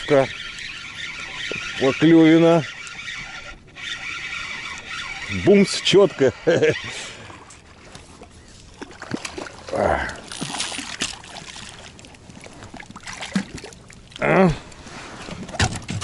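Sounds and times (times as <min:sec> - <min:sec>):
water splashing and dripping: 0:08.7 - 0:14.2.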